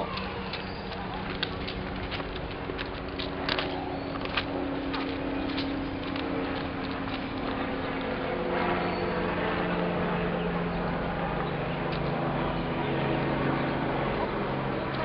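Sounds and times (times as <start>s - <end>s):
low mechanical drone: 0.0s - 15.0s
outdoor background noise: 0.0s - 15.0s.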